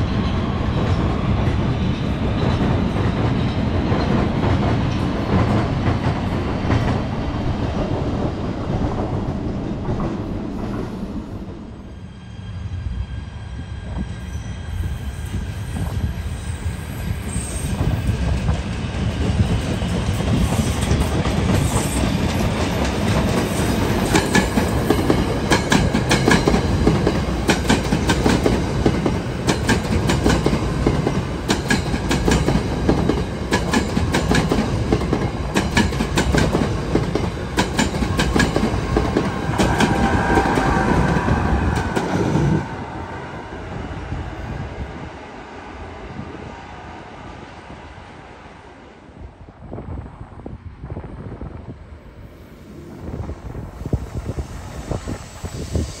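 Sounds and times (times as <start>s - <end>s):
train passing with heavy rumble: 0.0s - 56.0s
train wheels clicking over rail joints: 17.8s - 42.2s.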